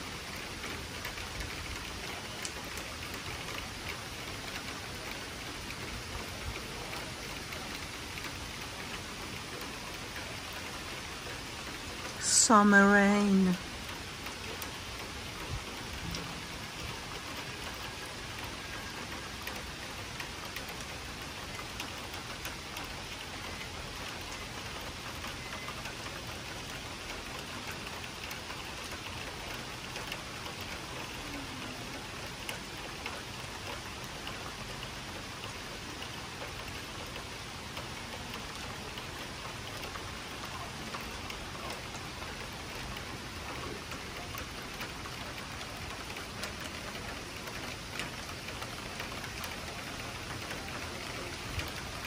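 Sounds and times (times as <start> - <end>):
steady rain falling: 0.0 - 52.0.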